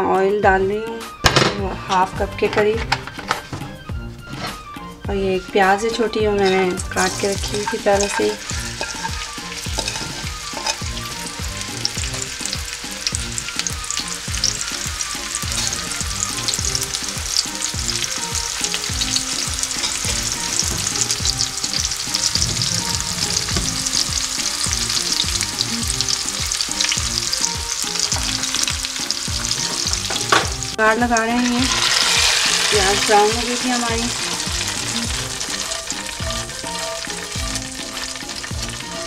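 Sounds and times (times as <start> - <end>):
onion sizzling in hot oil: 1.9 - 39.0
spatula knocking in a pan: 6.2 - 11.1, 19.4 - 25.3.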